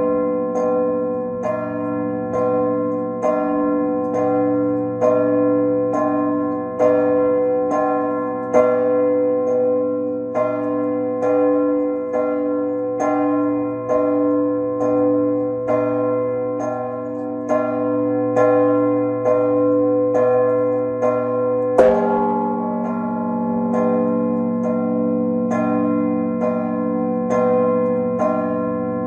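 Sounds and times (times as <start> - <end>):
church bells pealing: 0.0 - 29.0
deep sustained bell tone: 21.6 - 29.0.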